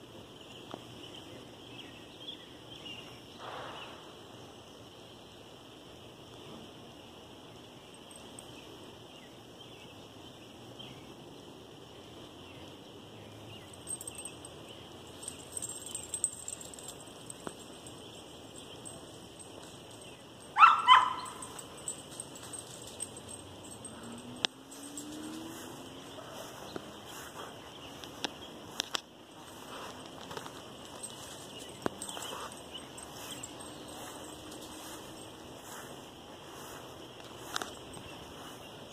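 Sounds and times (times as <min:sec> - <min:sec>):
dog barking: 0:20.6 - 0:21.7.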